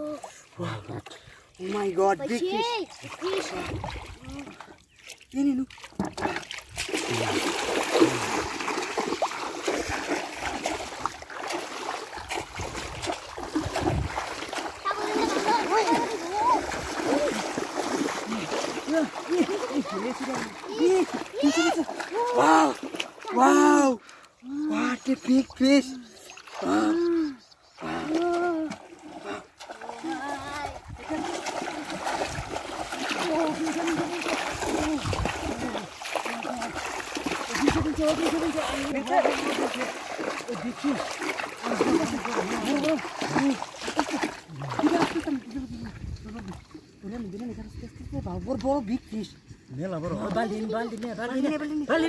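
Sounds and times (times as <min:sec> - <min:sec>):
water sloshing and splashing: 0:00.0 - 0:47.6
person calling out excitedly: 0:18.4 - 0:25.1.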